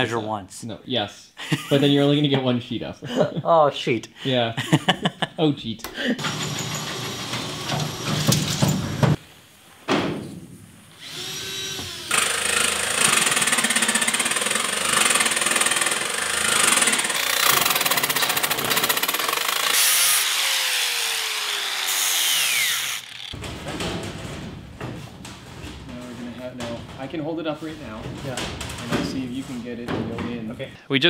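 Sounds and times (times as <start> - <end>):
angle grinder cutting metal: 11.0 - 23.4.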